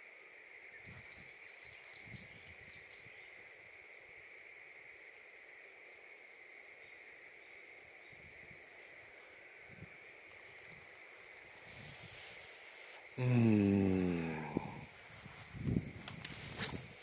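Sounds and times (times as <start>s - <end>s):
high-pitched insect drone: 9.2s - 14.9s.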